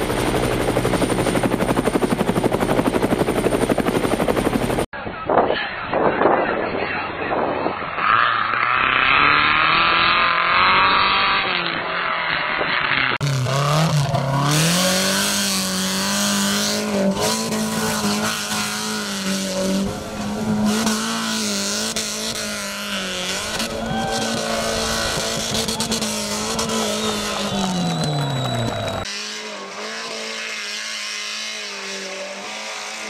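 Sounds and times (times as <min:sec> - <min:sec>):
buggy engine revving: 0:07.9 - 0:33.0.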